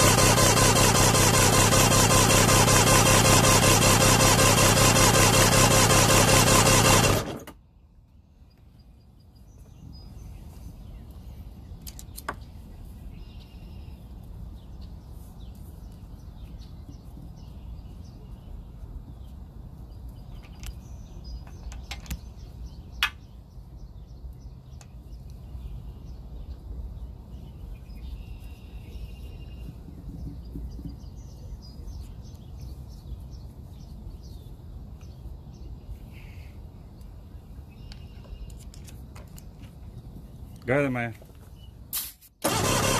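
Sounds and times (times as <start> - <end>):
outboard starter cranking: 0.0 - 7.6, 42.4 - 42.9
small bird chirping: 8.3 - 41.9
faint bird chirps: 27.6 - 34.5.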